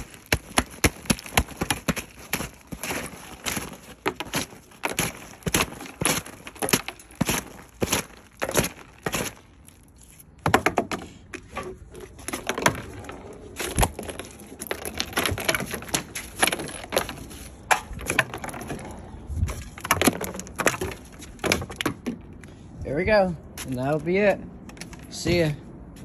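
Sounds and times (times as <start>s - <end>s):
ice chunks cracking and knocking: 0.0s - 10.9s, 12.2s - 18.9s, 19.6s - 22.1s.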